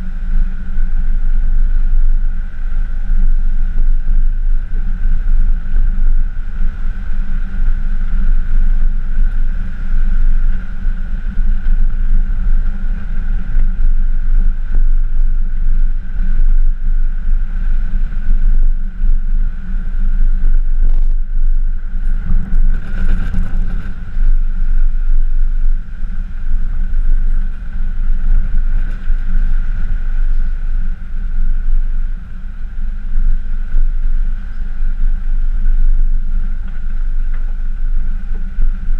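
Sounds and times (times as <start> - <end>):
truck engine and road rumble: 0.0 - 38.9.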